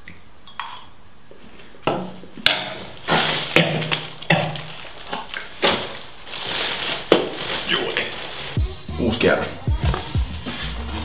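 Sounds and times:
person gagging and retching: 0:03.1 - 0:05.8.

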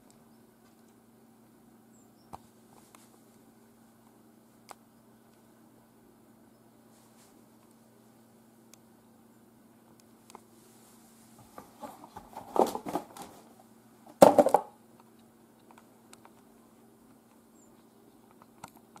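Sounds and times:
faint steady hum: 0:00.0 - 0:19.0
rustling and light knocks: 0:10.4 - 0:13.5
cardboard box clatter: 0:11.4 - 0:13.5, 0:14.2 - 0:14.7.

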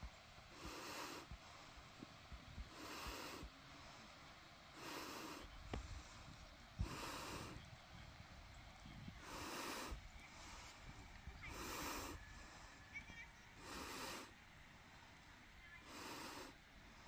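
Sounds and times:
faint breathing: 0:00.0 - 0:07.8, 0:09.0 - 0:17.0.

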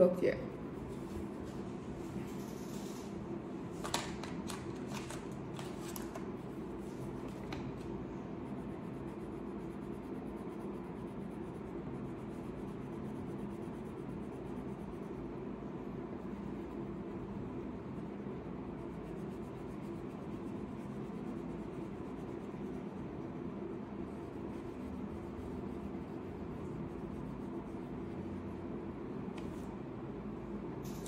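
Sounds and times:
steady low hum: 0:00.0 - 0:31.0
crayon scratching on paper: 0:08.4 - 0:15.2, 0:16.2 - 0:28.3.

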